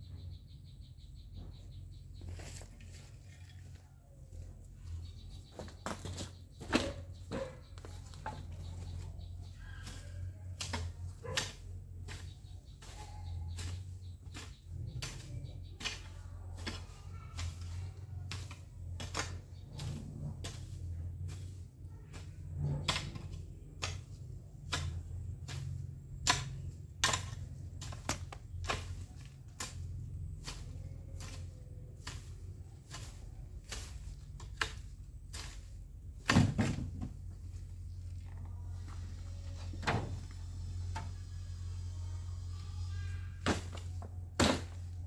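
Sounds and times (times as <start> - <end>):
garden tool chopping soil: 5.1 - 38.2, 43.4 - 45.0
hoe chopping into soil: 32.0 - 37.3, 43.4 - 45.0.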